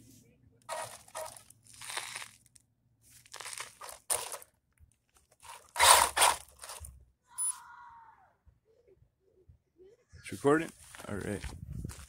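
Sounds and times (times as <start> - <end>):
crunching and rustling: 0.6 - 7.0.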